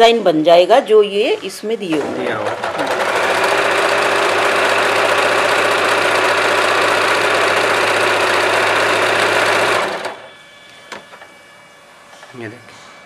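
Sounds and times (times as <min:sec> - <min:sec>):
electric sewing machine running: 0:01.9 - 0:10.3.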